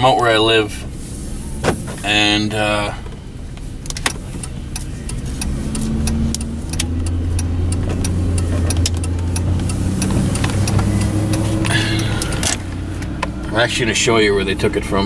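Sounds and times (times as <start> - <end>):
truck engine hum from inside cab: 0.0 - 15.0
sharp click: 3.9 - 13.1.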